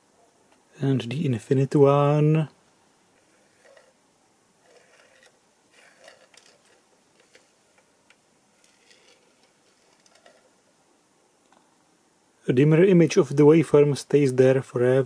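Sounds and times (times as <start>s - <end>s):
faint small clicks and rustles: 3.1s - 4.0s, 4.6s - 10.7s.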